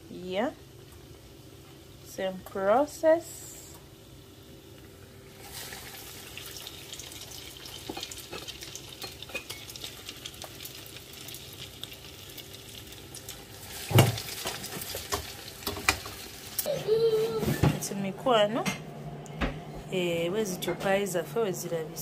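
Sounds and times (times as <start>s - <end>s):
oil sizzling and crackling: 0.6s - 16.7s.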